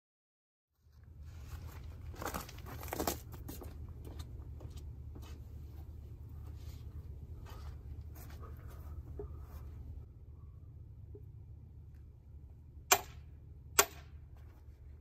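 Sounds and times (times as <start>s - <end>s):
rustling crackles: 1.0s - 4.2s
low rumble: 3.7s - 15.0s.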